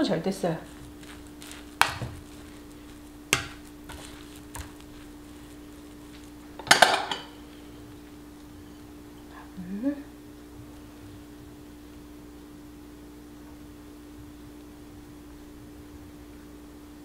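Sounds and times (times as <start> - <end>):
plastic paddle knocking on pot: 1.8 - 2.4.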